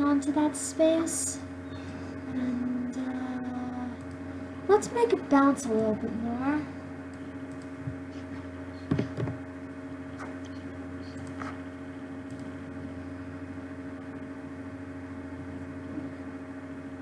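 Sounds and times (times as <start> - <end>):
background hum with held tones: 0.0 - 17.0.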